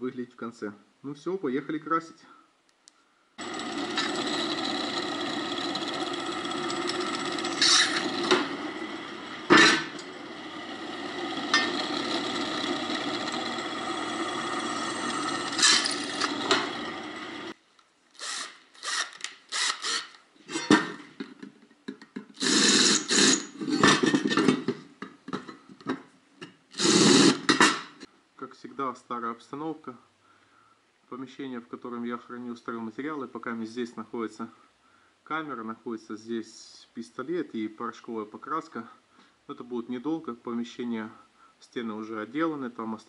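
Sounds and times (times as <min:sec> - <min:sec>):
cordless drill bursts: 0:03.4 - 0:17.6, 0:18.2 - 0:20.2, 0:22.4 - 0:23.8, 0:26.7 - 0:27.7
drill press drilling steel: 0:03.4 - 0:17.6, 0:18.2 - 0:20.6, 0:22.4 - 0:24.1, 0:26.7 - 0:27.8.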